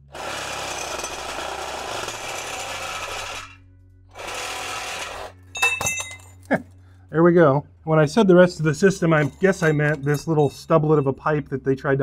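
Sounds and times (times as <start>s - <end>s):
reciprocating saw cutting metal pipe: 0.1s - 5.4s.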